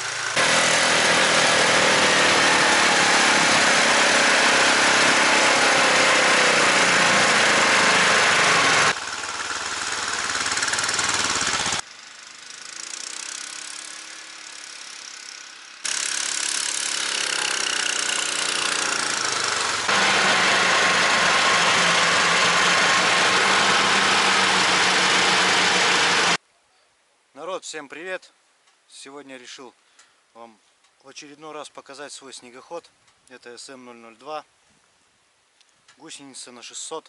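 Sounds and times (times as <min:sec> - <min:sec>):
snowmobile engine running: 0:00.0 - 0:11.8, 0:17.3 - 0:26.4.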